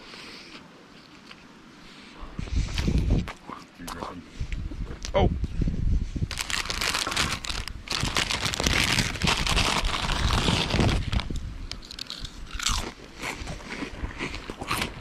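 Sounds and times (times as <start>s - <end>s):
chip bag crinkling: 6.3s - 15.0s.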